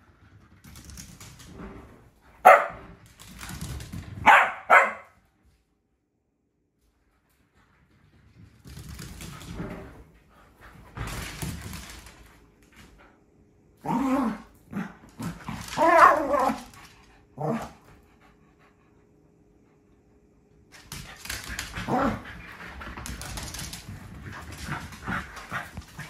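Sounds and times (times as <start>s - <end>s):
dogs scuffling: 0.1s - 5.0s, 7.3s - 13.0s, 15.0s - 17.8s, 20.7s - 26.0s
dogs barking and growling: 13.8s - 17.9s, 21.4s - 23.6s.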